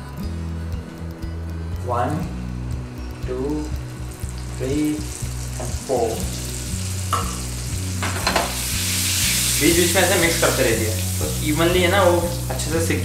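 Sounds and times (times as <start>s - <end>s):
eggs sizzling in hot oil: 3.1s - 13.0s.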